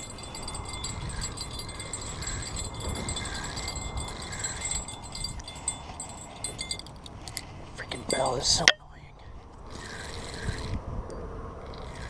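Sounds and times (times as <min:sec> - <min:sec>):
wind buffeting microphone: 0:00.0 - 0:08.6, 0:09.3 - 0:12.0.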